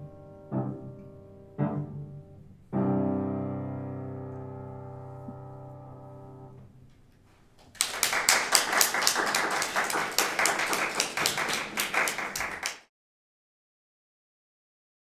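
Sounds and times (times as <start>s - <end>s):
piano chord ringing: 0.0s - 6.8s
audience applause: 7.6s - 12.9s.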